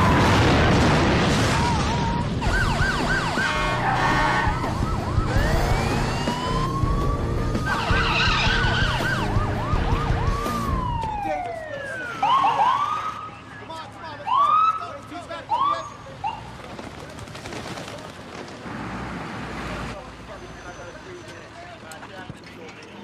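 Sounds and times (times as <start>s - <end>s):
emergency sirens wailing and yelping: 0.0s - 16.5s.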